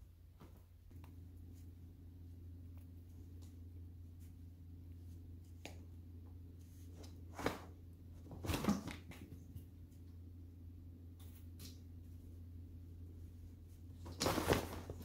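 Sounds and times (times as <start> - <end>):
low steady hum: 0.0 - 15.0
cat scrambling on fabric tunnel: 14.1 - 15.0.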